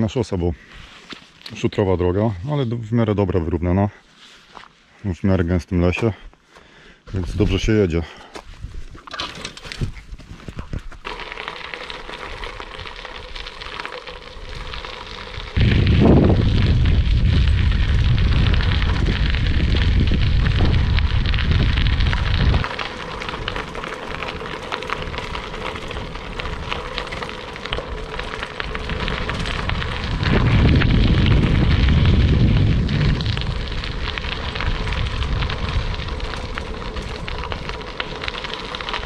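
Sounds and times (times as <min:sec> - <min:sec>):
bicycle tyres on gravel: 0:05.9 - 0:39.0
low rumble: 0:15.5 - 0:24.4, 0:25.2 - 0:39.0.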